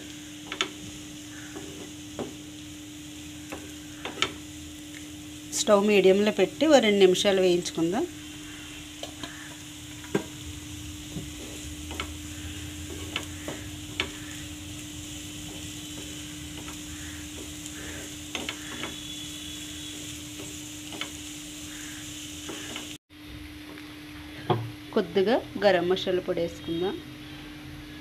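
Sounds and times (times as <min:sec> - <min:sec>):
potatoes sizzling in oil: 0:00.0 - 0:28.0
spatula scraping a pan: 0:11.1 - 0:21.0.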